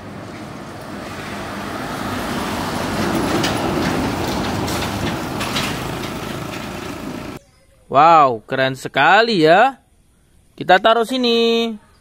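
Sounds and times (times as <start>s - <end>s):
heavy truck passing: 0.0s - 7.4s.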